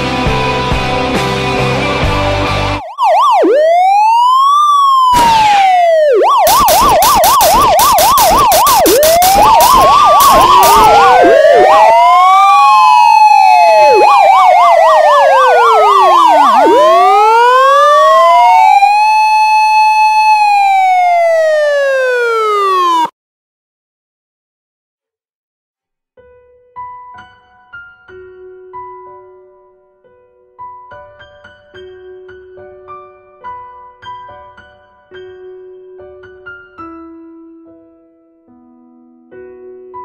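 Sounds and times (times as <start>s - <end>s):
emergency vehicle sirens: 2.8s - 23.1s.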